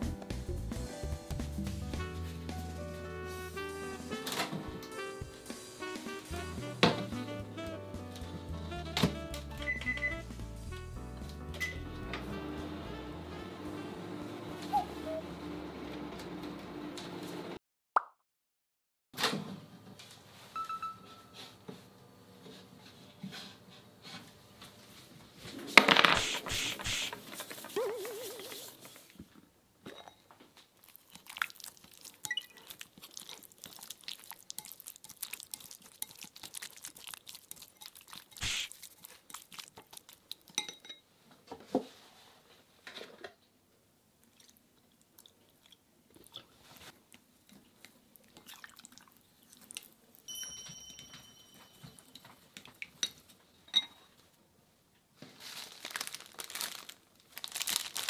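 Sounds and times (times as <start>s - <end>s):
chopsticks stirring in glass bowl: 30.8s - 41.0s.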